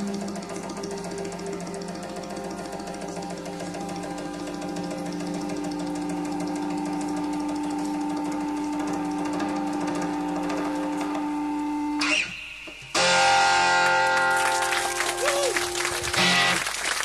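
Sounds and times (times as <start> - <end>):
music: 0.0 - 17.0
audience applause: 13.8 - 17.0.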